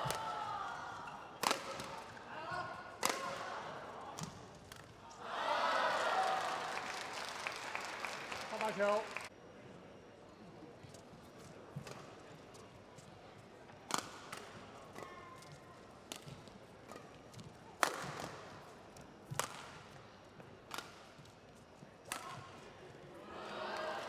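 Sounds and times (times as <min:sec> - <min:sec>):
rackets striking shuttlecock: 0:01.4 - 0:02.2, 0:03.0 - 0:03.5, 0:13.9 - 0:18.5, 0:19.3 - 0:20.0, 0:20.7 - 0:21.2, 0:22.0 - 0:22.6.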